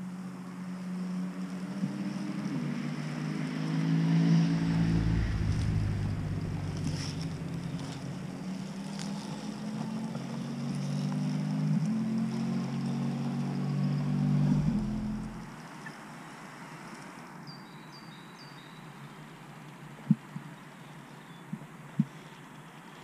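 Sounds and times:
low rumble: 0:04.4 - 0:08.3, 0:14.0 - 0:15.6
leaves and twigs crackling: 0:05.1 - 0:09.9.

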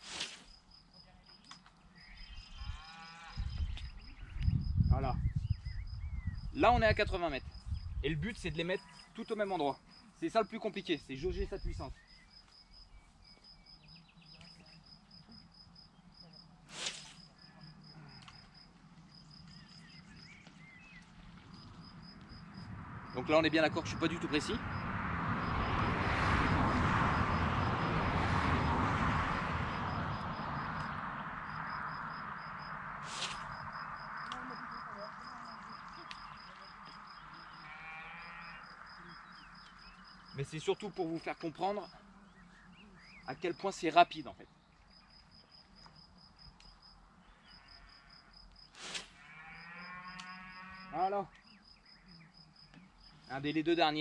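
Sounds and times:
insects chirping: 0:00.0 - 0:54.0
short whoosh: 0:33.0 - 0:33.6.

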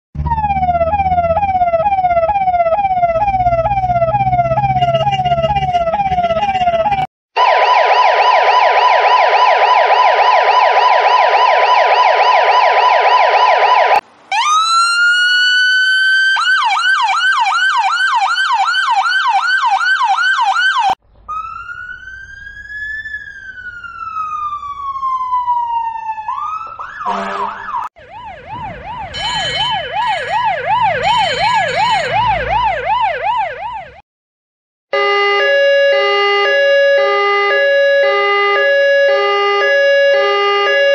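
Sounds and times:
engine rumble: 0:00.2 - 0:07.0, 0:21.0 - 0:34.0
emergency vehicle sirens: 0:00.2 - 0:34.0, 0:34.9 - 0:40.9.

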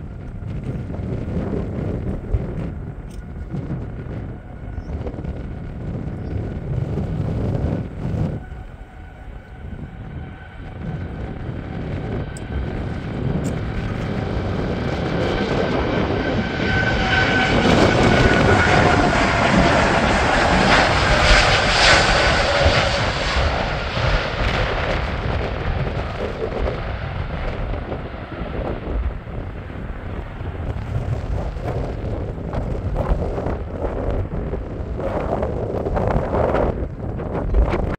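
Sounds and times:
jet engine whine falling in pitch: 0:00.0 - 0:37.9
jet engines at take-off thrust: 0:00.0 - 0:37.9.

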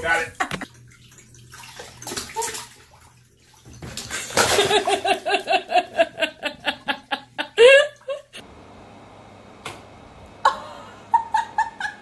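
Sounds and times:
water sloshing in bathtub: 0:00.0 - 0:06.0
person laughing rhythmically: 0:04.6 - 0:08.4, 0:10.5 - 0:12.0.

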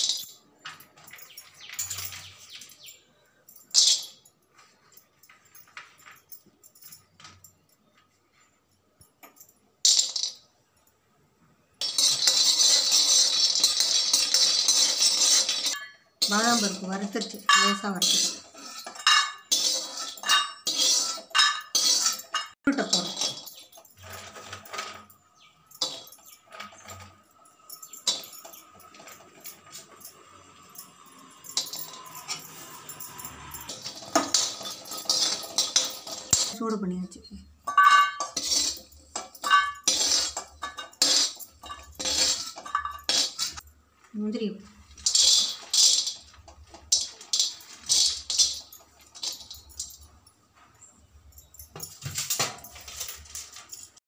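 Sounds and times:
nuts rattling into metal pan: 0:00.0 - 0:03.0, 0:03.6 - 0:04.2, 0:09.8 - 0:10.4, 0:11.8 - 0:36.8, 0:37.6 - 0:43.6, 0:44.7 - 0:50.1, 0:51.4 - 0:54.0
metal ladle clinking and scraping: 0:11.8 - 0:36.6, 0:37.6 - 0:43.6, 0:44.8 - 0:50.2.

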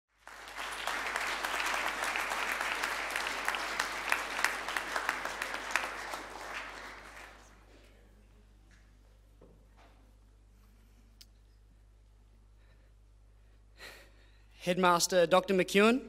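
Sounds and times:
audience applauding: 0:00.1 - 0:07.7.

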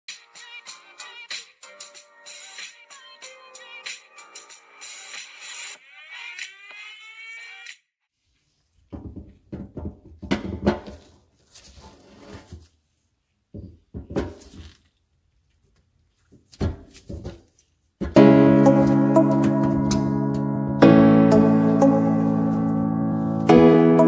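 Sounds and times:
knocks and clunks in a cabinet: 0:08.9 - 0:11.0, 0:13.5 - 0:14.4
loud music: 0:18.2 - 0:24.0.

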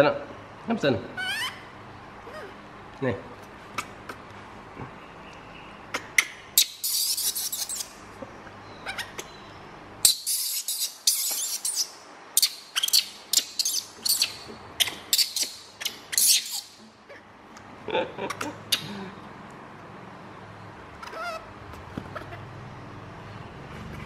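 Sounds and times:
baby monkey shrieking: 0:01.1 - 0:02.6, 0:05.9 - 0:08.0, 0:08.8 - 0:09.3, 0:10.0 - 0:17.2, 0:21.0 - 0:21.5.

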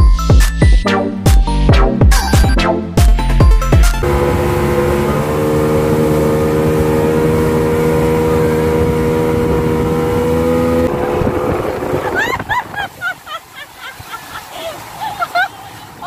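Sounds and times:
motorboat engine drone: 0:03.5 - 0:12.8
rushing water: 0:03.8 - 0:16.0
wind noise: 0:06.8 - 0:13.4.

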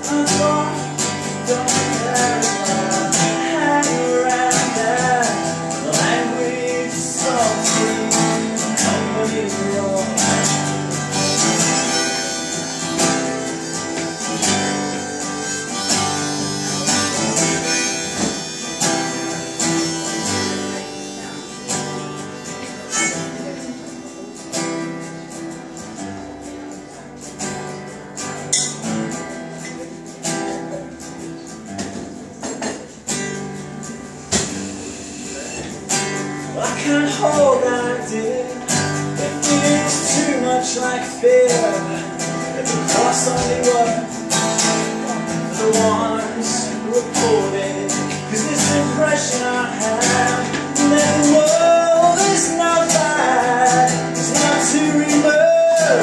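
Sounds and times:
acoustic guitar strumming: 0:00.0 - 0:56.0
harmonica playing: 0:10.5 - 0:24.5.

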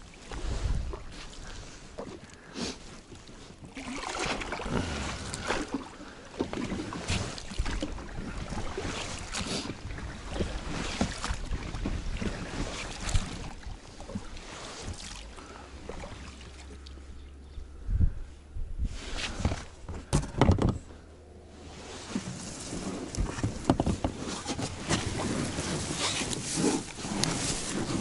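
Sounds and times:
wind rumbling on microphone: 0:00.0 - 0:02.0, 0:06.8 - 0:15.0, 0:16.6 - 0:28.0
rustles and knocks from handling: 0:19.2 - 0:21.0, 0:22.0 - 0:28.0.

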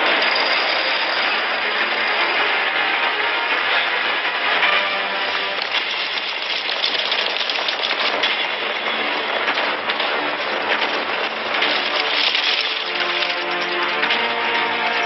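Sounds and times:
clattering armour: 0:05.6 - 0:14.0.

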